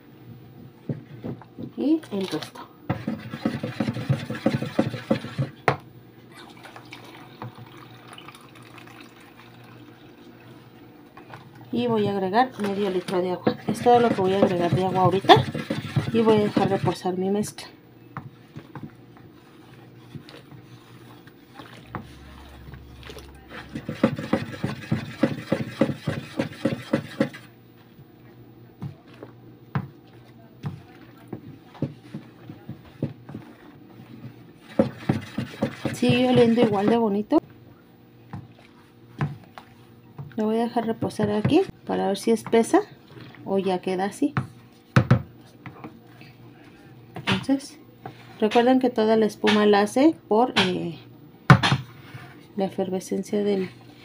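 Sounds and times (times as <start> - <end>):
spoon stirring sloshing foam: 0.8 - 5.6, 6.4 - 49.6, 51.9 - 54.0
tap running water: 6.5 - 10.1.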